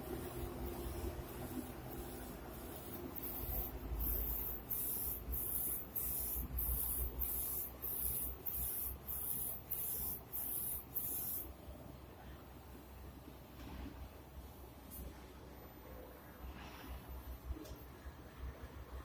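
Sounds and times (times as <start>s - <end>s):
print head carriage hissing: 0.0s - 11.5s.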